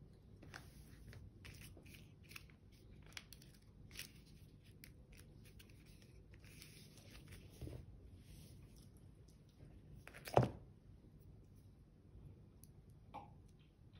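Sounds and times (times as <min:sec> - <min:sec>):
paper crinkling: 0:00.5 - 0:07.8.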